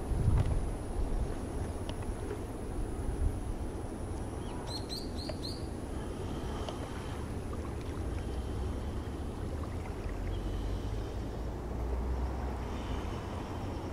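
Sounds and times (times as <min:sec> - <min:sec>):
wind buffeting microphone: 0:00.0 - 0:10.5
small bird chirping: 0:04.4 - 0:05.7.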